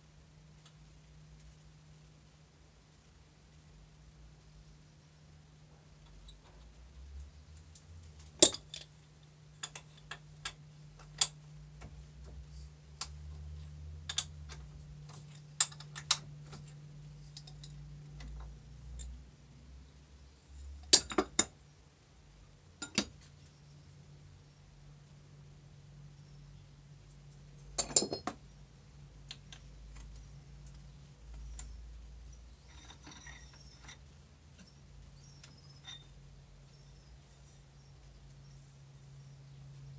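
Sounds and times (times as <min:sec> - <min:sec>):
low steady hum: 0:00.0 - 0:39.9
metallic clinks and taps: 0:08.3 - 0:08.9, 0:09.6 - 0:12.4, 0:14.0 - 0:19.2, 0:20.8 - 0:21.5, 0:22.8 - 0:23.2, 0:27.7 - 0:28.4, 0:32.6 - 0:34.0, 0:35.4 - 0:36.1.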